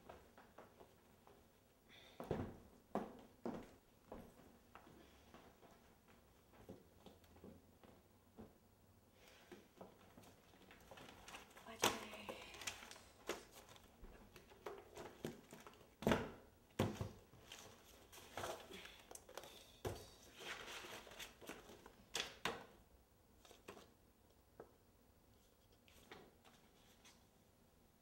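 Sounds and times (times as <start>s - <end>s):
paper rustling: 10.1s - 15.9s, 20.2s - 21.9s.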